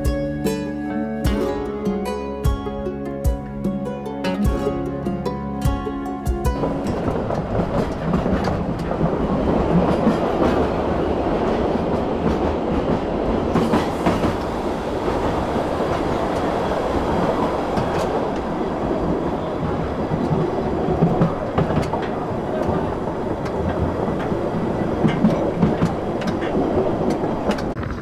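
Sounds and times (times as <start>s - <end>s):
train wheels rolling on rails: 6.4s - 28.0s
wheels clacking over rail joints: 6.4s - 28.0s.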